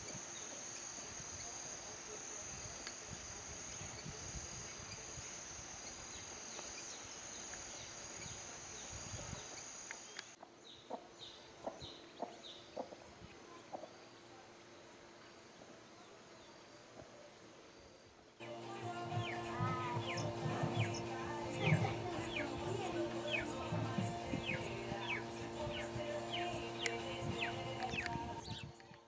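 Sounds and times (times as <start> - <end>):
high-pitched insect drone: 0.0 - 10.2, 18.4 - 28.7
bird chirps: 18.4 - 29.0
clicks: 23.1 - 29.0.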